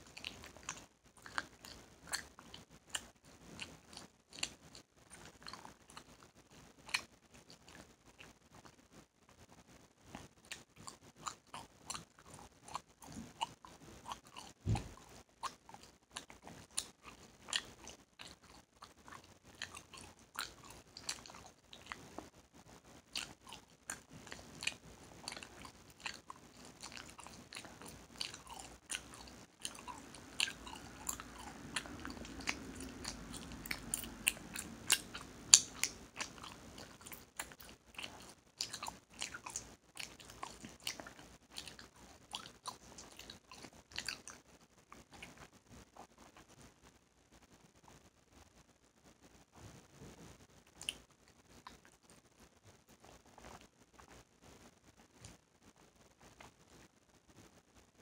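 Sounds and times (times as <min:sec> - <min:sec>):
gum chewing wet smacks: 0:00.0 - 0:08.8, 0:10.1 - 0:22.3, 0:23.0 - 0:46.4, 0:50.8 - 0:52.2.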